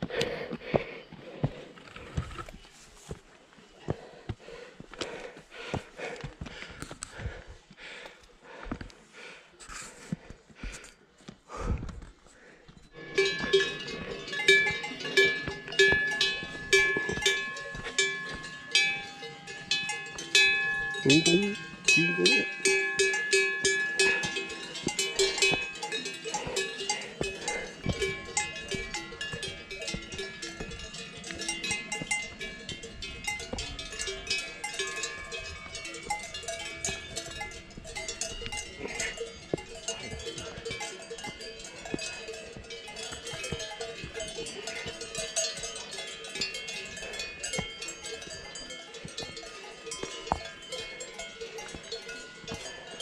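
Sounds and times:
cowbells clanking: 0:12.7 - 0:53.0.

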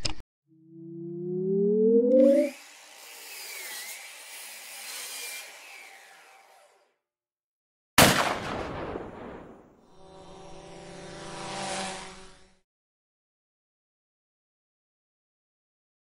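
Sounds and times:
hissing whoosh with wavering whistle: 0:01.0 - 0:02.6
loud gunshot-like bang: 0:08.0 - 0:09.8.

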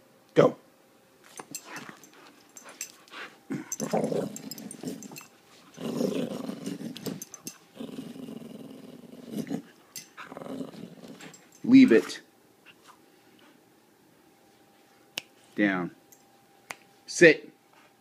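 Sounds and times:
dog growling: 0:03.5 - 0:11.4.

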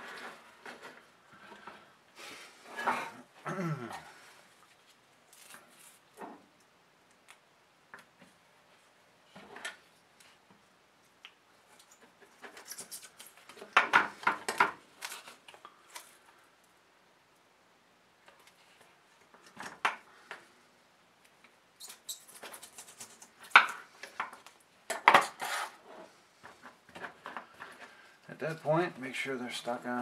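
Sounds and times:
tape tearing: 0:05.3 - 0:06.0, 0:11.8 - 0:13.7, 0:15.0 - 0:16.2, 0:21.8 - 0:23.6.

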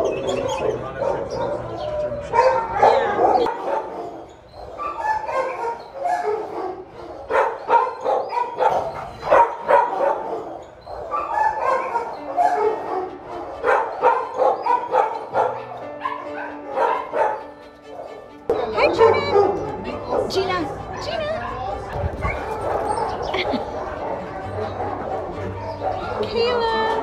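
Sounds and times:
dogs barking and yipping: 0:00.0 - 0:27.0.

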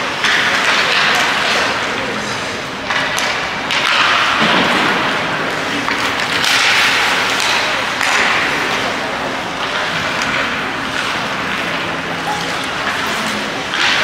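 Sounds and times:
noisy rink din: 0:00.0 - 0:14.0.

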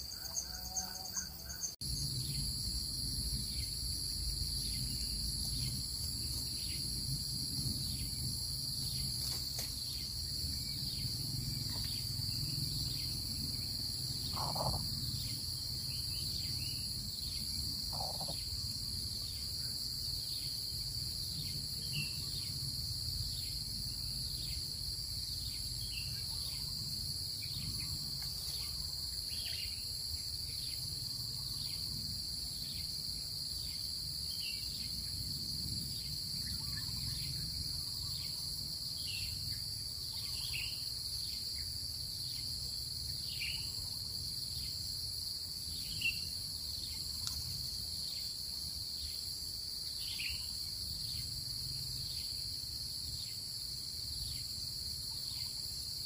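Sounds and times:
high-pitched insect chorus: 0:00.0 - 0:56.0
low wind rumble: 0:01.8 - 0:29.0.

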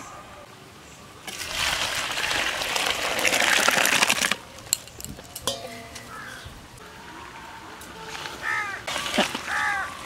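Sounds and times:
liquid pouring and splashing into pot: 0:01.3 - 0:04.4.

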